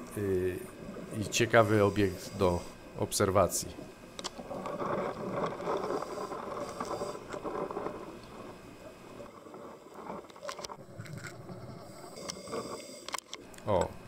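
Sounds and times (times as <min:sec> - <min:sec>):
underwater rushing hiss: 0:01.2 - 0:02.9, 0:05.3 - 0:08.6, 0:11.1 - 0:13.1.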